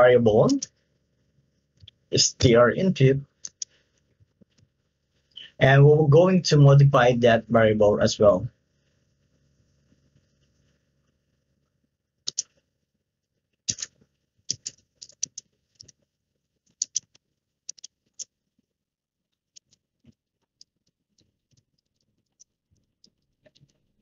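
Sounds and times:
keyboard typing clicks: 12.3s - 12.5s, 13.7s - 15.9s, 16.8s - 18.3s.

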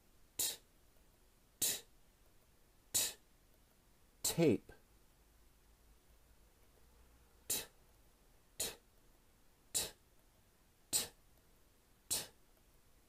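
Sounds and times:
man making t sounds: 0.4s - 0.7s, 1.6s - 1.9s, 2.9s - 3.3s, 4.2s - 4.8s, 7.4s - 7.8s, 8.6s - 8.9s, 9.7s - 10.0s, 10.9s - 11.2s, 12.1s - 12.4s.

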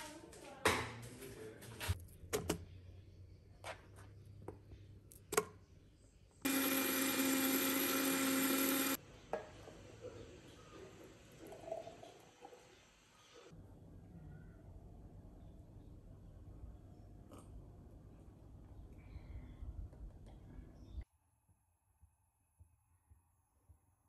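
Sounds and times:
blender motor running: 6.4s - 9.0s.

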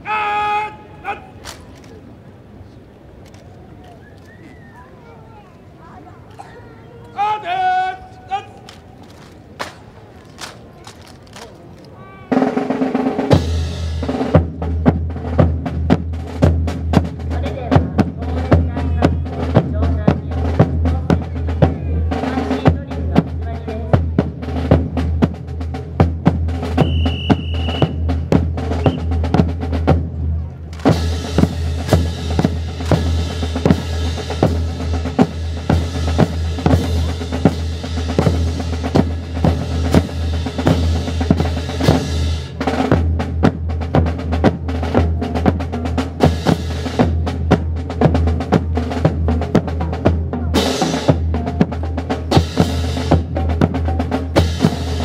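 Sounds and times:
broad rushing noise: 0.0s - 55.0s
marching snare and bass drums: 12.0s - 55.0s.

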